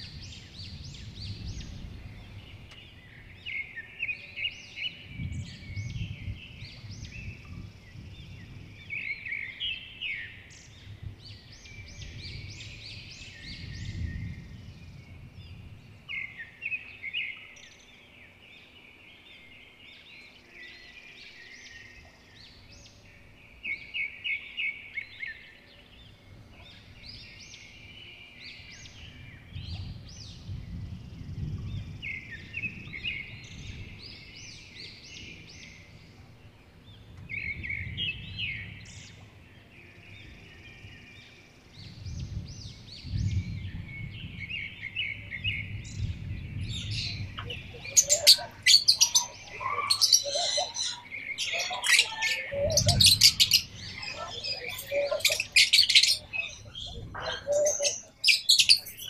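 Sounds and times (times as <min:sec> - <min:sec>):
parrots chirping and chattering: 0:47.4 - 0:59.0.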